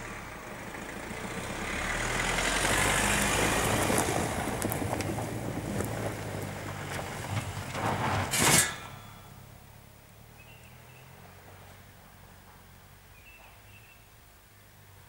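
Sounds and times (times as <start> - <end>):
car engine running: 0.0 - 13.1
exhaust pipe scraping ground: 3.2 - 9.5
faint bird chirps: 10.3 - 11.2.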